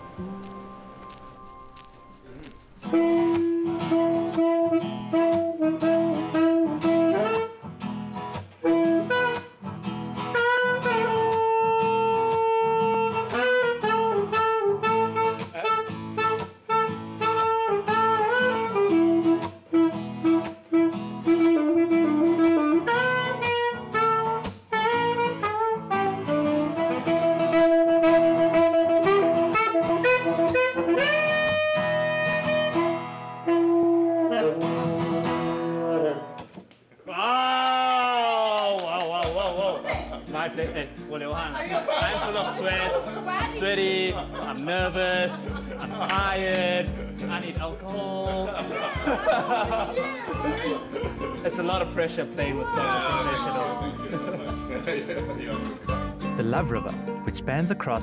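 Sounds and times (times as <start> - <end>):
saxophone melody: 0.0 - 8.0, 8.6 - 36.4, 55.6 - 58.0
strummed acoustic guitar chords: 2.2 - 36.6, 40.0 - 58.0.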